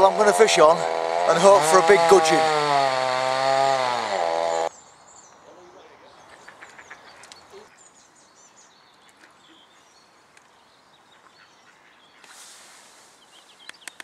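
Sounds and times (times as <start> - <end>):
bird calls: 4.7 - 14.0.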